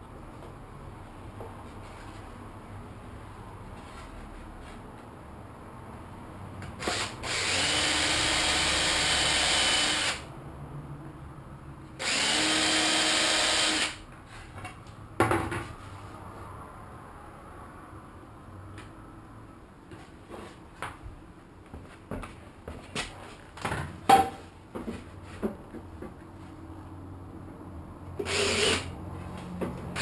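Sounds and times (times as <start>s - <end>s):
cordless drill drilling into wood: 6.8s - 10.3s, 12.0s - 14.0s, 28.2s - 28.9s.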